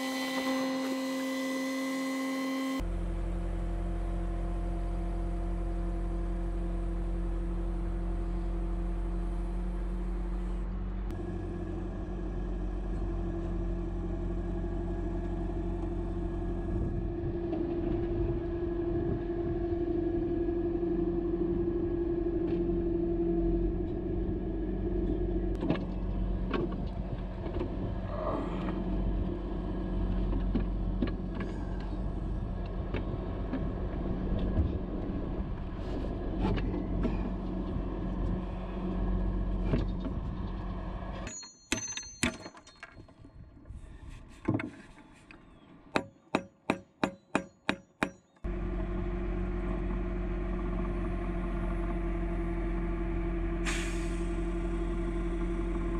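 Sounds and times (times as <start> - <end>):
truck engine running: 0.0 - 41.3, 48.4 - 55.9
ringing metal strikes: 41.3 - 42.9.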